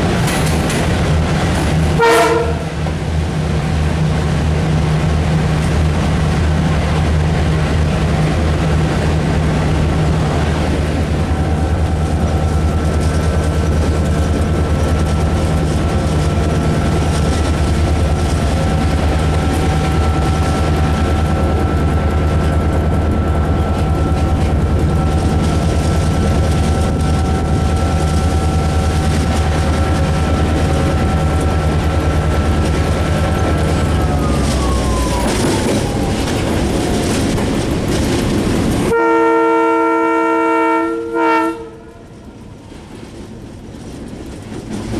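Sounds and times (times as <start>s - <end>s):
diesel locomotive engine droning: 0.0s - 44.9s
engine whine: 0.0s - 44.9s.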